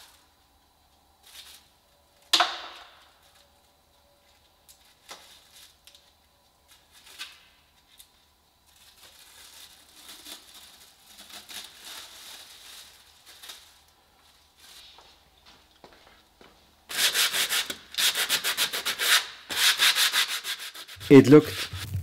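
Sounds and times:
plastic foil crackling and crinkling: 1.2s - 1.8s, 4.6s - 15.2s.

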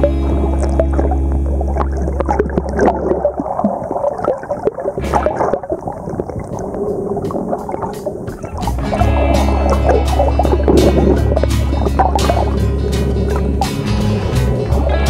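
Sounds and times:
background music: 0.0s - 2.2s, 8.0s - 15.0s
water gurgling underwater: 0.0s - 15.0s.

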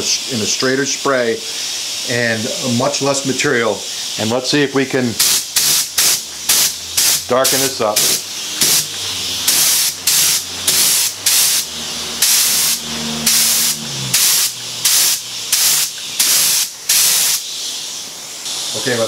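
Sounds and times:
spray gun hissing: 0.0s - 19.0s.

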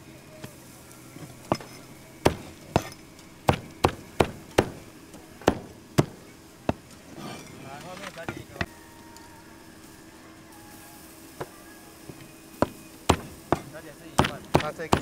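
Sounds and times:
knife chopping on cutting board: 12.6s - 15.0s.

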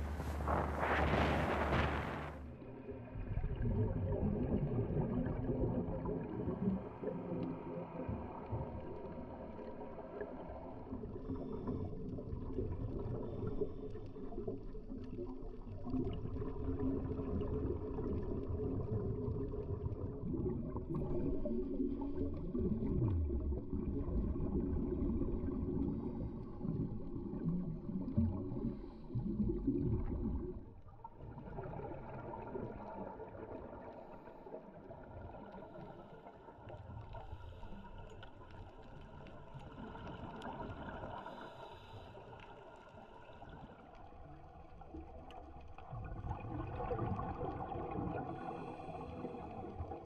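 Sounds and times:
exhaled bubbles gurgling: 0.0s - 50.0s
diver regulator breathing underwater: 48.3s - 49.8s.

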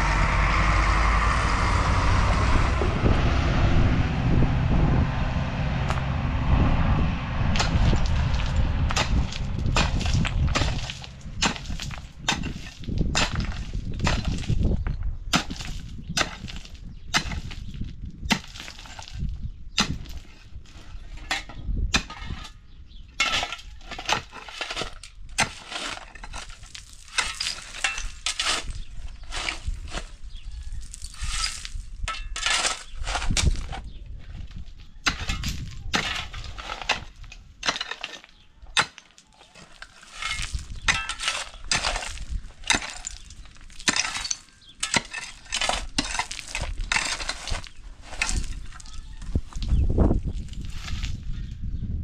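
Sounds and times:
stones clinking and grinding: 7.6s - 19.3s, 23.2s - 33.9s, 34.9s - 51.2s
hand tools striking stony ground: 7.6s - 33.9s, 34.8s - 51.0s.

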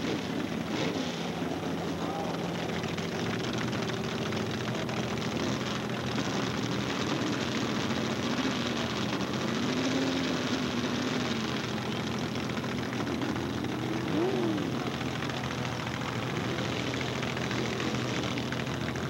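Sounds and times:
off-road vehicle engines running: 0.0s - 19.0s
faint voice: 1.2s - 2.9s.

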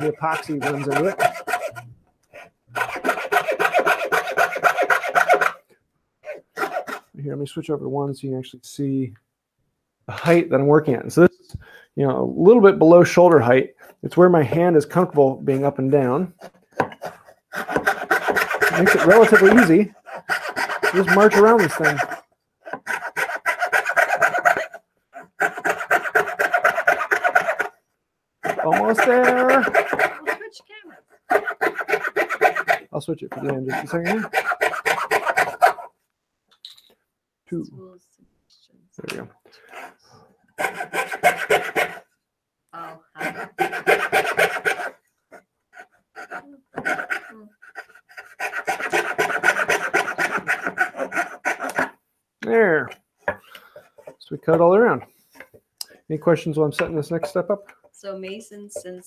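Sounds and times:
coping saw cutting wood: 0.0s - 5.6s, 6.2s - 7.1s, 14.9s - 27.7s, 28.4s - 35.9s, 40.6s - 42.1s, 42.8s - 45.0s, 45.7s - 52.0s.

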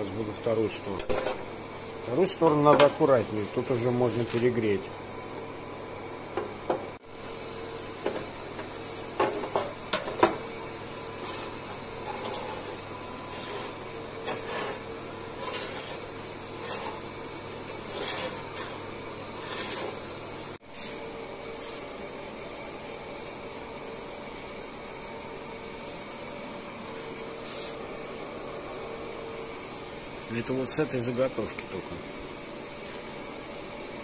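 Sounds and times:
steel rasping on abrasive belt: 11.2s - 17.1s, 17.7s - 18.8s, 19.4s - 20.0s.

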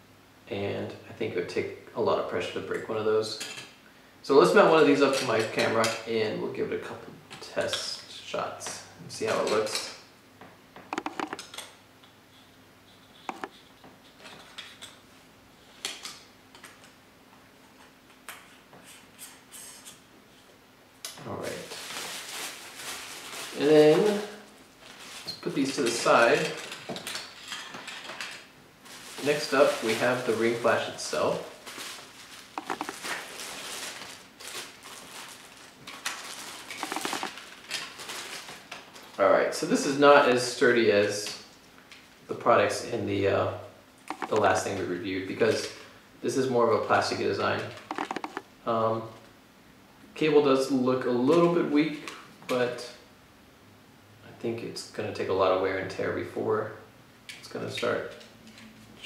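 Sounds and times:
plastic bags rustling and crinkling: 21.3s - 39.9s
plastic squeaks: 32.6s - 33.2s, 36.7s - 37.5s, 47.8s - 48.4s.

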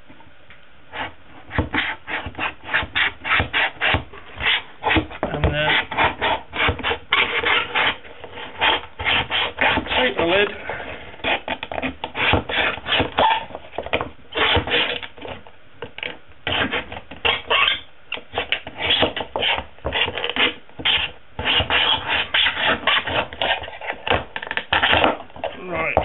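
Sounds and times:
knife scraping tin can: 1.8s - 10.2s, 16.5s - 25.5s.

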